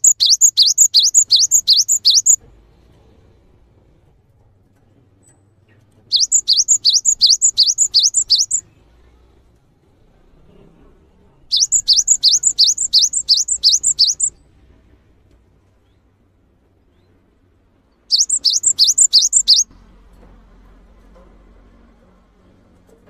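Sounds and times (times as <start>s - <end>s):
bird singing high rapid notes: 0.0s - 2.4s, 6.1s - 8.6s, 11.5s - 14.4s, 18.1s - 19.7s.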